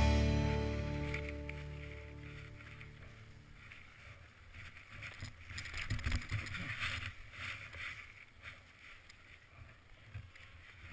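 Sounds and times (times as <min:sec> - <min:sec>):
footsteps crunching in snow: 0:00.8 - 0:05.2.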